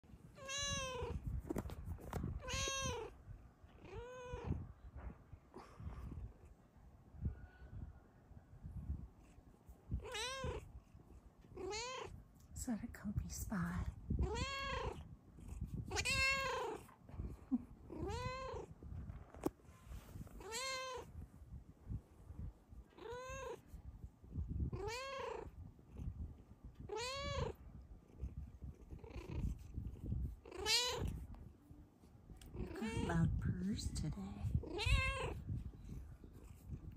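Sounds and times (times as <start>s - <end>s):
cat meowing: 0.4s - 1.2s, 2.4s - 3.1s, 3.8s - 4.6s, 10.0s - 10.6s, 11.6s - 12.1s, 14.2s - 15.0s, 15.9s - 16.8s, 17.9s - 18.7s, 20.4s - 21.1s, 23.0s - 23.6s, 24.8s - 25.5s, 26.8s - 27.6s, 30.5s - 31.2s, 34.6s - 35.4s
cat purring: 27.2s - 31.2s.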